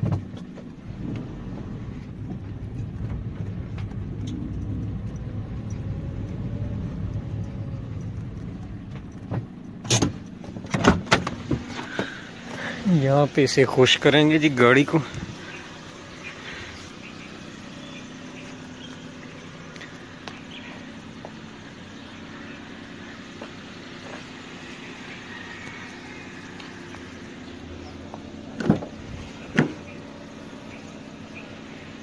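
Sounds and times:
low mechanical hum: 0.0 - 32.0
tailgate knocks: 9.3 - 12.1, 28.6 - 29.8.

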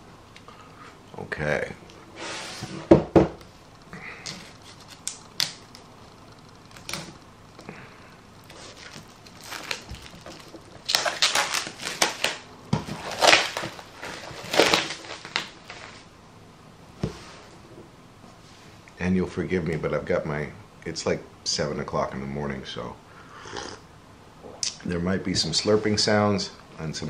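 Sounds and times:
book knocking on tabletop: 2.9 - 3.4
plastic shrink wrap crinkling: 4.2 - 5.9, 8.4 - 16.1.

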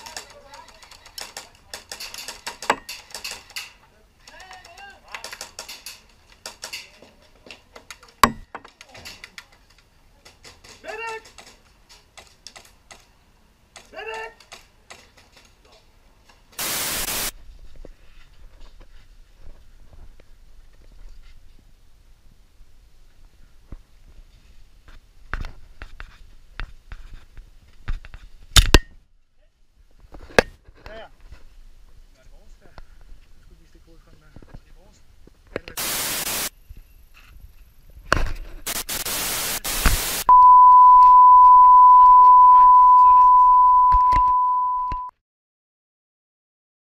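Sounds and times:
static hiss burst: 16.6 - 17.4, 35.8 - 36.6, 38.6 - 40.3
test-tone beep: 40.3 - 45.1.

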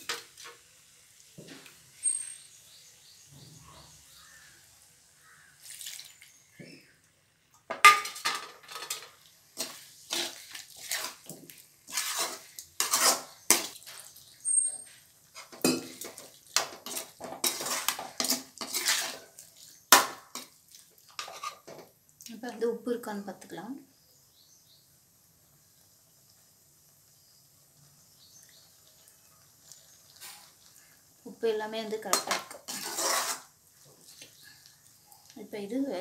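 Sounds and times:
food frying: 0.0 - 36.0
metal ladle scraping a pan: 7.9 - 20.5, 21.1 - 21.8, 32.1 - 34.3.

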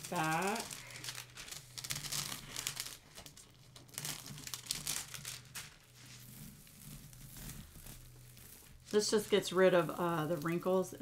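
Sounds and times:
plastic film crinkling: 0.0 - 11.0.

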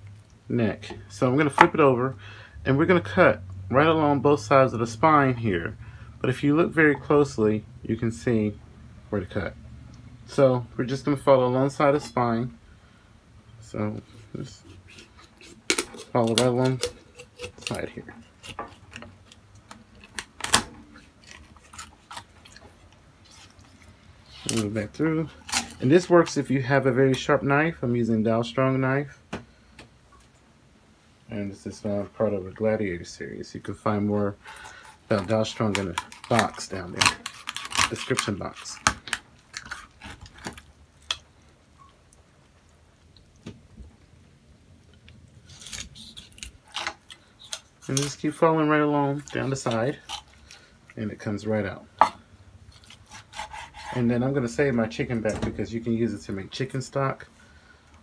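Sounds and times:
knife crunching through chicken bones: 14.6 - 26.1, 34.5 - 41.2, 45.5 - 48.4, 49.1 - 50.7, 52.7 - 54.0
bone snapping: 15.4 - 17.8, 18.4 - 22.6, 35.1 - 41.3.

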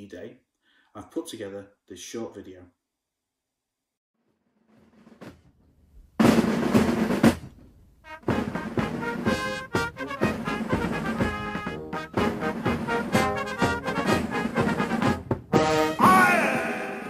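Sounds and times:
snare drum roll: 4.6 - 16.2
band music with brass: 8.0 - 16.9.

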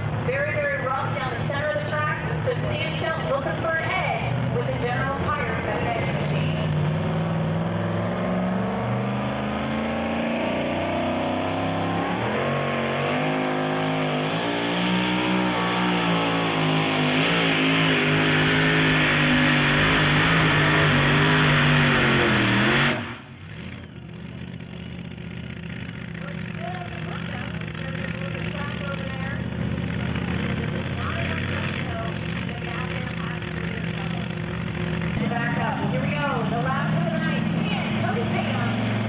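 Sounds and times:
truck engine at full throttle: 0.0 - 39.0.

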